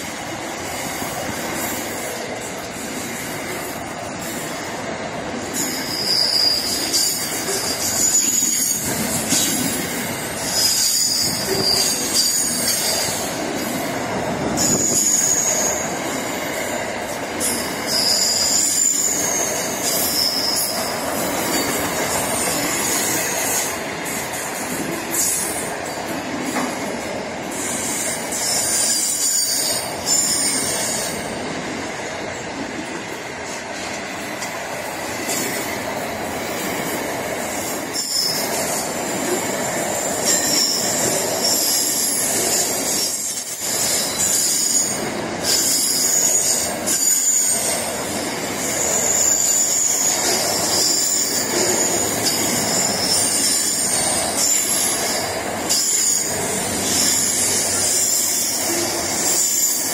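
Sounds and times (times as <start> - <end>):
train wheels rumbling on rails: 0.0 - 59.9
high-pitched wheel squeal: 5.5 - 9.5, 10.4 - 13.4, 14.4 - 16.3, 17.4 - 21.7, 27.6 - 31.3, 37.9 - 39.1, 40.0 - 48.0, 48.6 - 59.9.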